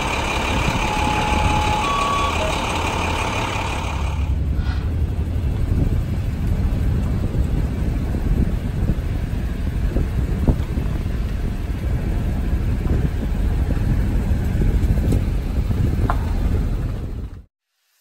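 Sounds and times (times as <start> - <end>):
train passing rumble: 0.0 - 17.4
vehicles idling with high whine: 0.0 - 17.5
short electronic beeps: 0.9 - 2.6.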